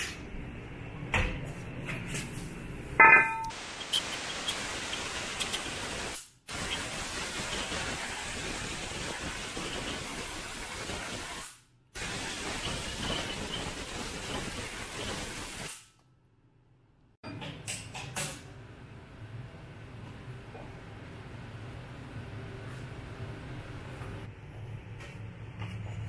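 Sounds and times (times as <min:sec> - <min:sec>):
hissing spray: 0:03.5 - 0:15.9.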